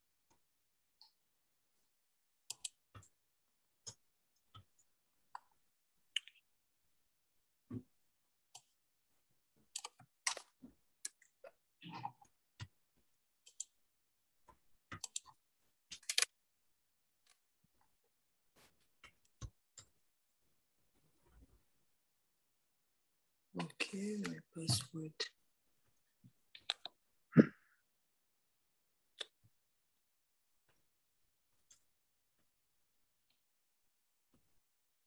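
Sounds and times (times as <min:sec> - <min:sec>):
laptop keys typing: 0:02.4 - 0:03.1, 0:14.9 - 0:16.3.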